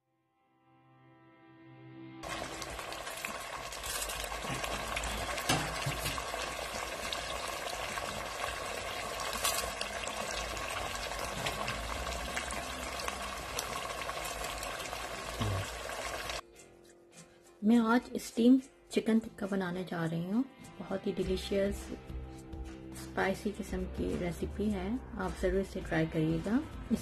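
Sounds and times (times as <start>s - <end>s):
meat sizzling and popping in a pot: 2.2s - 16.4s.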